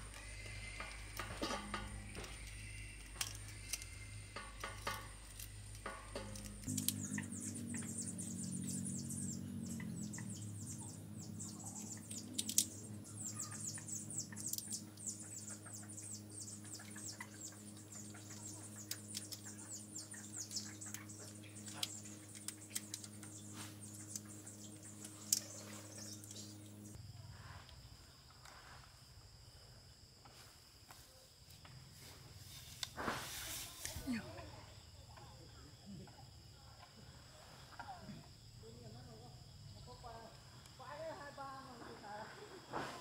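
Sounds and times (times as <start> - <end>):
low steady hum: 0.0 - 27.3
rapid high-pitched chirping: 6.2 - 27.0.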